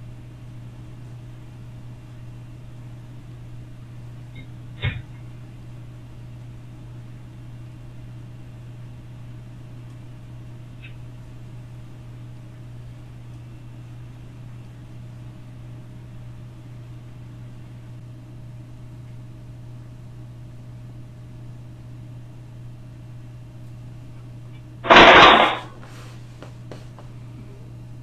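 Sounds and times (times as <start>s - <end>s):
low hum with hiss: 0.0s - 28.0s
sudden loud burst of noise: 24.8s - 25.8s.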